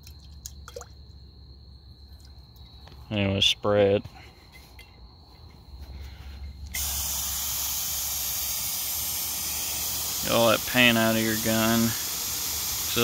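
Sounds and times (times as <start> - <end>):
compressed air hissing: 6.7 - 13.0
spray gun trigger: 6.7 - 13.0.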